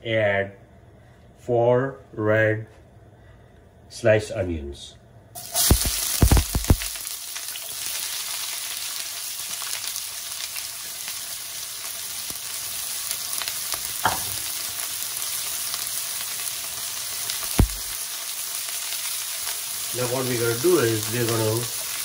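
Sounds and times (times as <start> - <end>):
onions sizzling in hot oil: 5.4 - 22.0.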